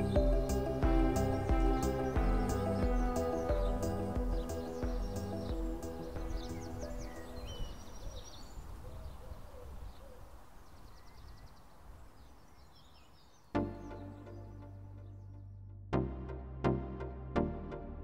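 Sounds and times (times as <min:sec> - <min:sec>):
music chords: 0:00.0 - 0:07.4
birdsong: 0:00.0 - 0:15.4.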